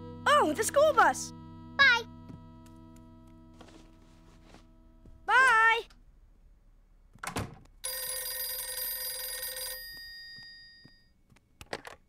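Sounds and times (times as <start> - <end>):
telephone bell ringing: 7.8 - 11.1.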